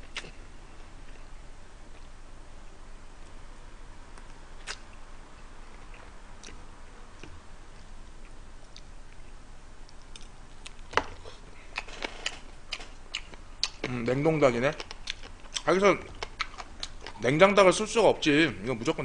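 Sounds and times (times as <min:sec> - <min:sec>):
person chewing food: 0:04.1 - 0:05.0, 0:05.7 - 0:14.0, 0:14.8 - 0:17.2.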